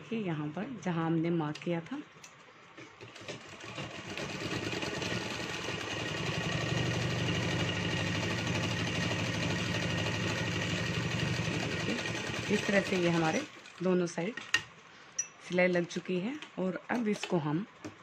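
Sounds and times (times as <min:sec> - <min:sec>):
sewing machine running: 0:03.0 - 0:13.8.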